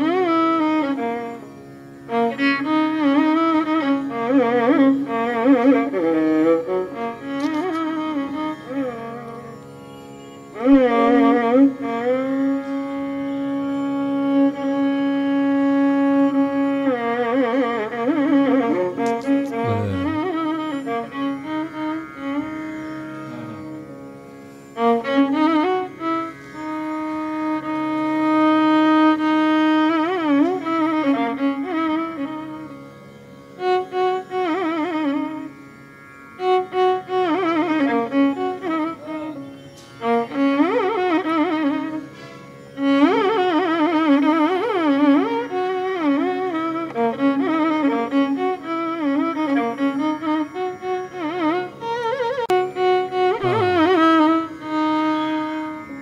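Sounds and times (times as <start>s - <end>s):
violin melody: 0.0s - 56.0s
low drone: 53.4s - 54.4s.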